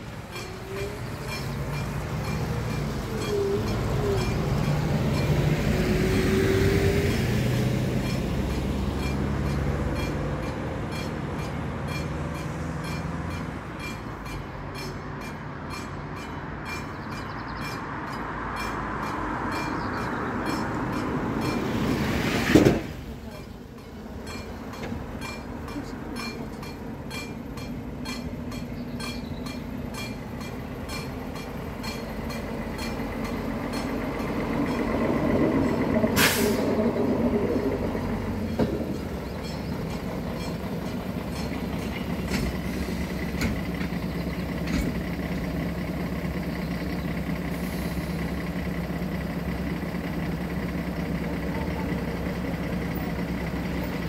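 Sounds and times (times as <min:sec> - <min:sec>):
diesel railcar passing: 0:00.0 - 0:54.0
truck diesel engine idling: 0:23.0 - 0:54.0.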